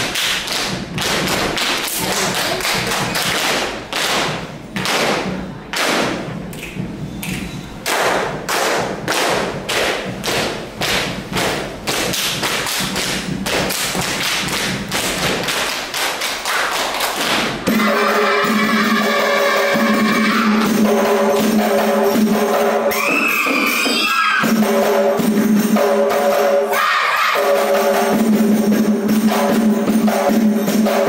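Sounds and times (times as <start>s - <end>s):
body slapping and clapping: 0.0s - 17.6s.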